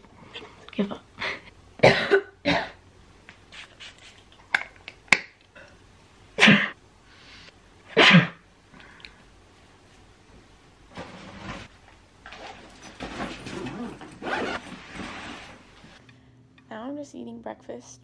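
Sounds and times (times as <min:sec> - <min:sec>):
girl sneezing: 0:06.4 - 0:06.8, 0:08.0 - 0:08.4
rustling: 0:10.9 - 0:16.0.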